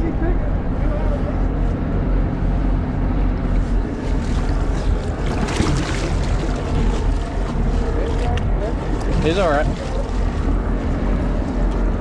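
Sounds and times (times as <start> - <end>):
boat engine running: 0.0 - 12.0
wind on microphone: 0.0 - 12.0
fish thrashing and splashing: 3.7 - 11.6.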